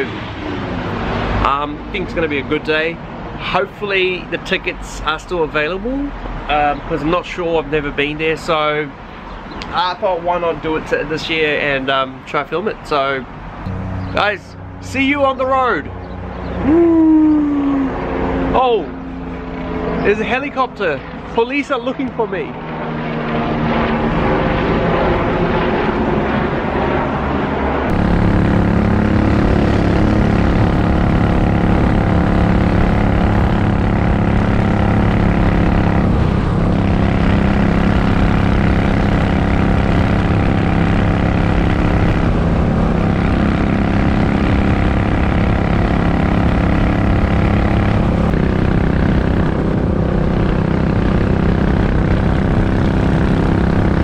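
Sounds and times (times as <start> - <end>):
helicopter passing overhead: 0.0 - 12.3, 13.2 - 54.0
motorcycle engine cruising: 13.4 - 26.4, 27.9 - 54.0.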